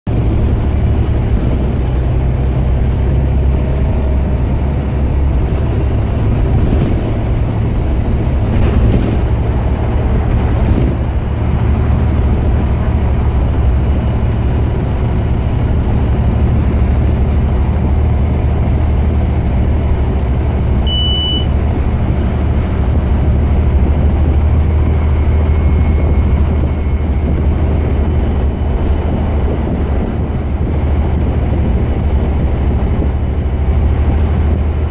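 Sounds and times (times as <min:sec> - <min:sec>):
bus engine droning: 0:00.0 - 0:34.9
road noise: 0:00.0 - 0:34.9
short high beep: 0:20.8 - 0:21.6.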